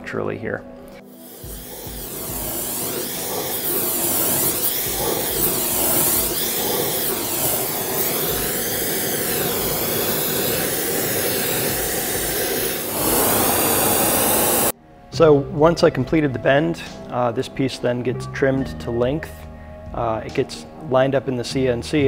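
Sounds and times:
gas torch flame hissing: 1.0s - 14.7s.

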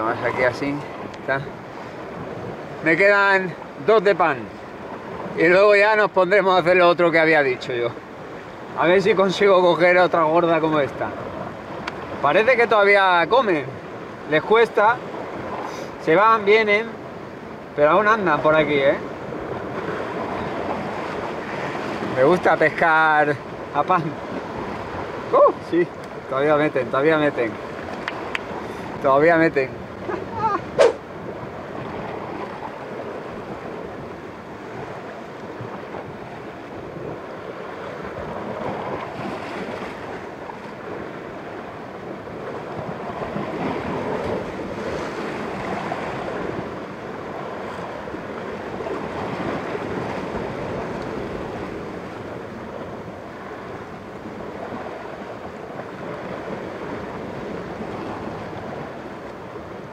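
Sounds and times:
waves washing against rocks: 0.0s - 59.9s
wind on microphone: 27.5s - 59.9s.

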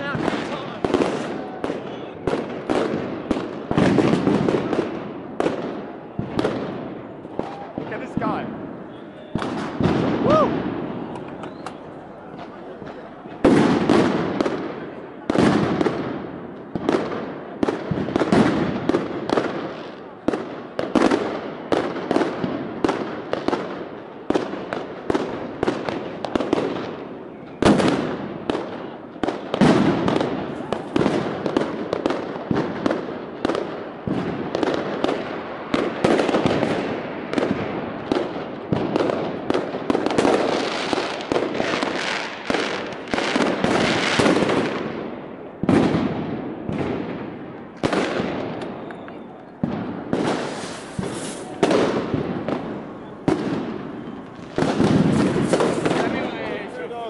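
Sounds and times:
fireworks and firecrackers banging: 0.0s - 57.0s.

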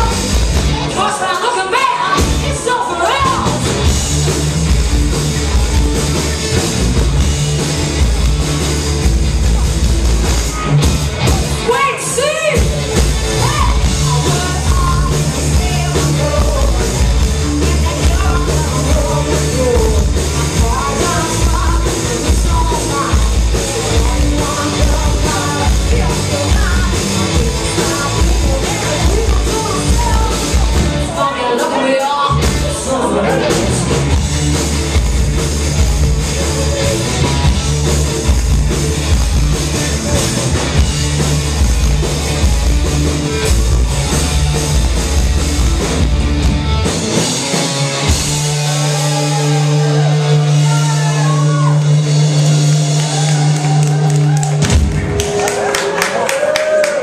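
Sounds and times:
punk rock band playing: 0.0s - 57.0s
woman singing: 0.9s - 3.6s, 13.4s - 33.8s.

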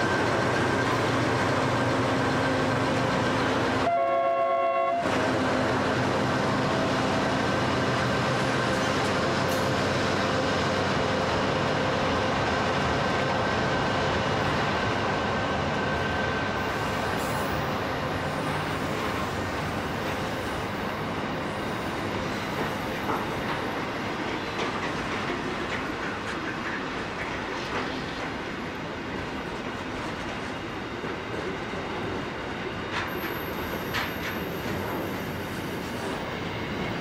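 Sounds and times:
train wheels rumbling on rails: 0.0s - 4.0s, 4.6s - 37.0s
diesel locomotive whine: 0.0s - 37.0s.

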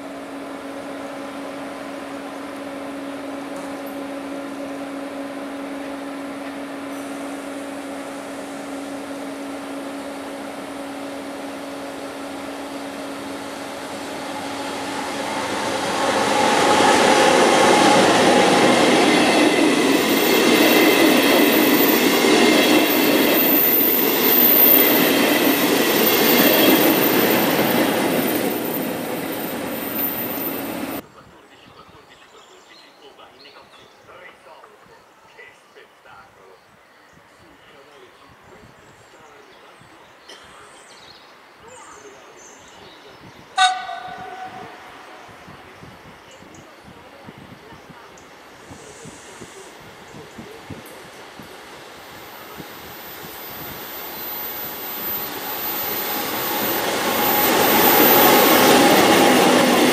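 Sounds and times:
electric locomotive hum: 0.0s - 31.0s, 42.1s - 59.9s
train wheels on rails: 0.0s - 31.0s, 43.6s - 59.9s
high squealing wheels: 15.4s - 31.0s, 52.2s - 59.9s.

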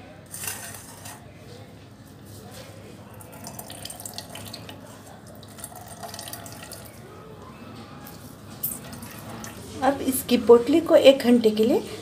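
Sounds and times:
liquid trickling into metal bowl: 3.2s - 7.0s, 8.6s - 9.7s.

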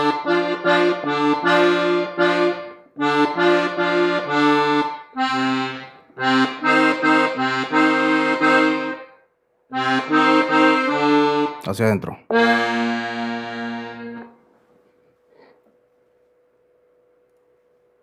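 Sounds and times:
button accordion playing: 0.0s - 11.6s, 12.3s - 14.4s.

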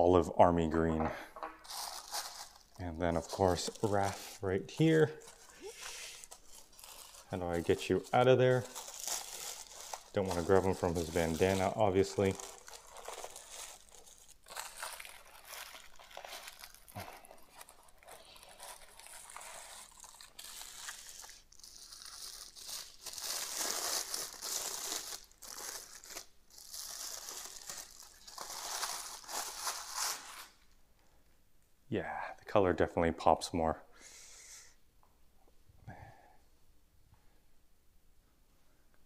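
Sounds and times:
plastic wrap crinkling: 1.6s - 30.8s.

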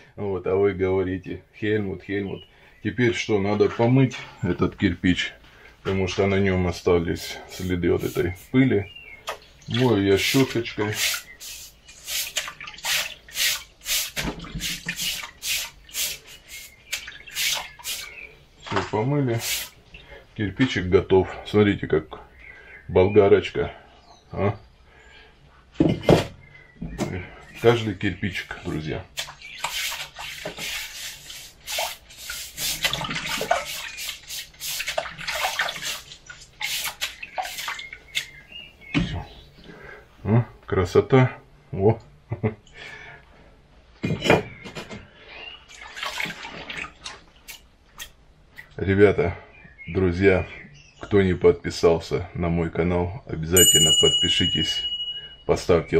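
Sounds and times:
brush scrubbing wet brick: 7.0s - 8.9s, 9.7s - 18.3s, 19.2s - 19.8s, 29.2s - 38.3s
water splashing: 7.1s - 20.7s, 29.1s - 38.4s, 45.6s - 48.2s.

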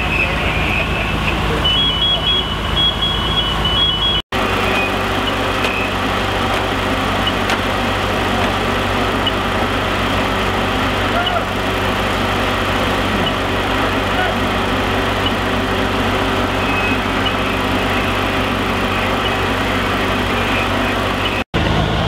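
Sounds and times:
fire engine humming: 0.0s - 22.0s
two-tone electronic beep: 0.1s - 5.9s.

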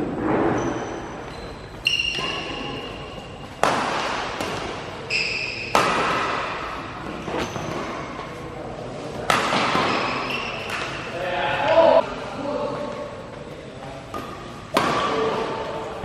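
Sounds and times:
rackets hitting shuttlecock: 1.7s - 8.3s, 9.2s - 11.2s, 14.1s - 15.6s.

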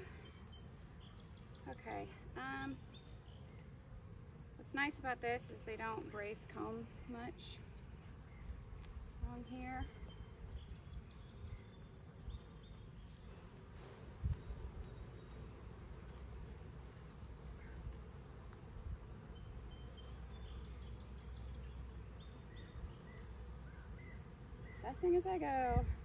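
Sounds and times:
bees buzzing: 0.0s - 26.0s
high-pitched insect chorus: 0.0s - 26.0s.

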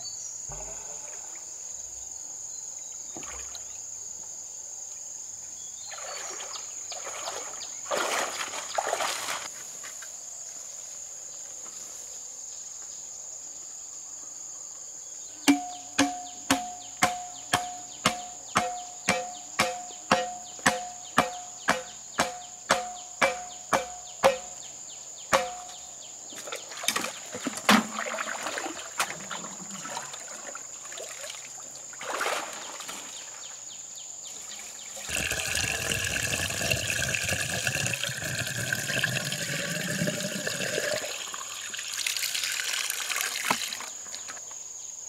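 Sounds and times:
insects droning: 0.0s - 45.0s
sharp ringing strikes: 15.5s - 24.7s, 25.3s - 25.8s.

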